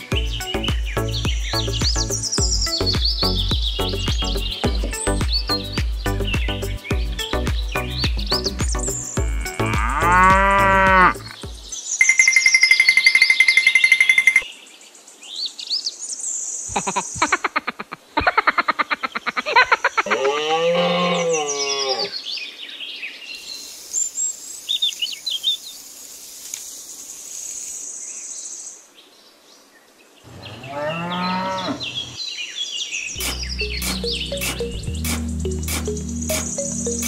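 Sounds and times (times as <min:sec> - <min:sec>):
birds chirping: 0:00.0 - 0:14.5, 0:30.2 - 0:37.0
cow mooing: 0:09.2 - 0:11.3, 0:20.1 - 0:22.1, 0:30.3 - 0:32.2.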